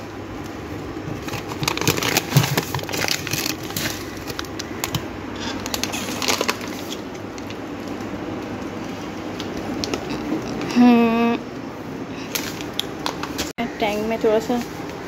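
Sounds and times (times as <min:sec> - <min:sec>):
plastic food packets crinkling: 0:01.1 - 0:08.8.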